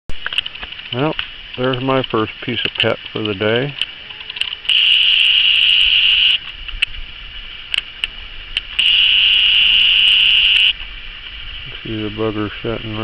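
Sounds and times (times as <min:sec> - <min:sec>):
insect buzzing: 0:03.9 - 0:06.4, 0:08.8 - 0:10.8.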